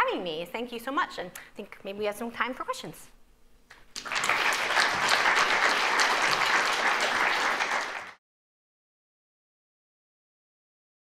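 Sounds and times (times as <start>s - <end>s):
audience applauding: 3.9s - 8.2s.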